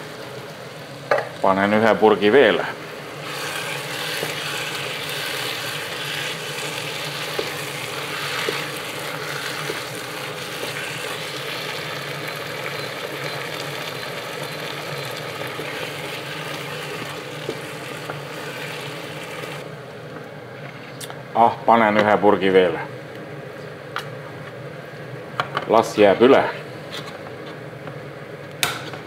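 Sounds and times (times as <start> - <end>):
vegetables sizzling in oil: 2.2 - 19.6.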